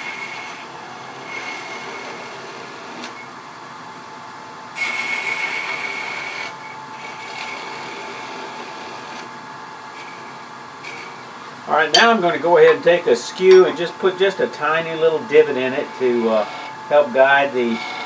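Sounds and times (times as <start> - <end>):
wood lathe tool cutting: 0.0 - 3.2, 4.8 - 9.3, 9.9 - 18.0.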